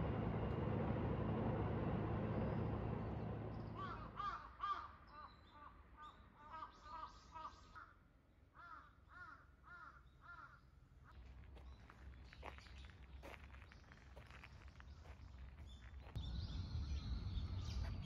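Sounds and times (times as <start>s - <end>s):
crows cawing: 3.8s - 5.0s, 8.6s - 10.6s.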